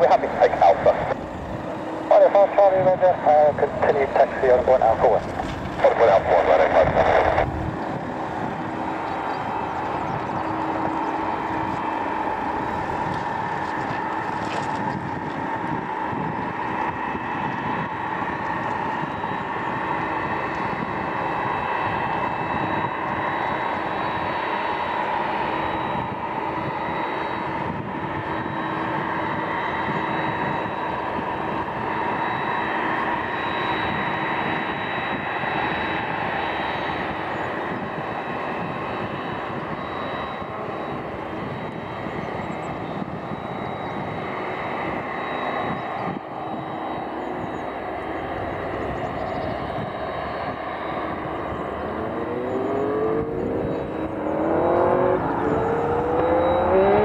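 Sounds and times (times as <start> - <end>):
jet engines rushing and whining: 0.0 - 57.0
engine note climbing in pitch: 50.2 - 57.0.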